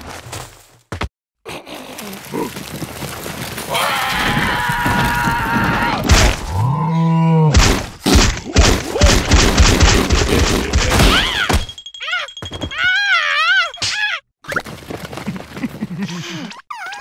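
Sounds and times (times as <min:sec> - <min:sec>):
cartoon scream: 0:03.7 - 0:06.7, 0:10.9 - 0:14.2.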